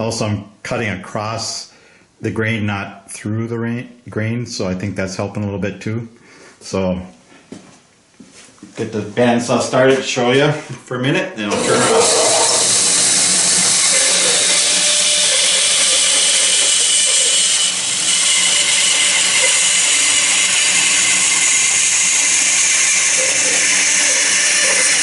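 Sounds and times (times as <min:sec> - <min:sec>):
bandsaw cutting wood: 0:11.5 - 0:25.0.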